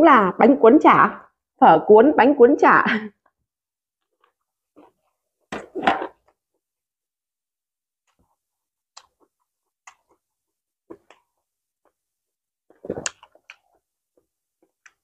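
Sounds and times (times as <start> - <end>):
wet chewing clicks and smacks: 9.0 - 10.2.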